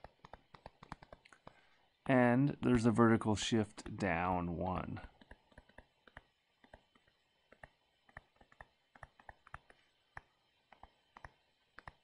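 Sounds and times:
stylus tapping on tablet screen: 0.0 - 1.6, 5.0 - 12.0.

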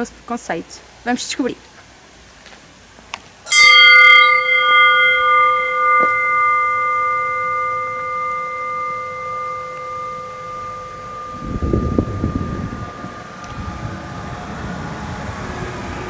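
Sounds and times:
small metal bell ringing: 3.5 - 13.5.

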